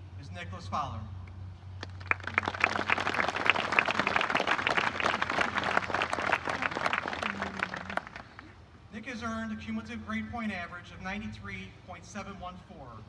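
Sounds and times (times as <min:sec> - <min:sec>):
crowd applauding: 0:01.8 - 0:08.5.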